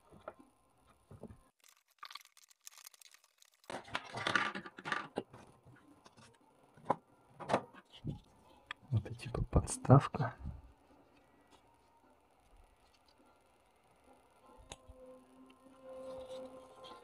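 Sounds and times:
cardboard and plastic rustling: 1.2s - 6.3s.

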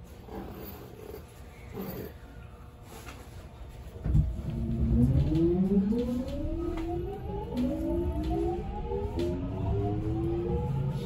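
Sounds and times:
low running rumble: 3.4s - 11.0s
train motor whine: 4.1s - 11.0s.

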